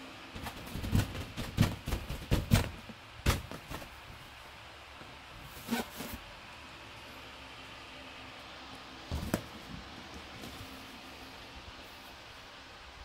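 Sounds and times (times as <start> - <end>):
balloon thumps and rubbing: 0.4 - 3.9.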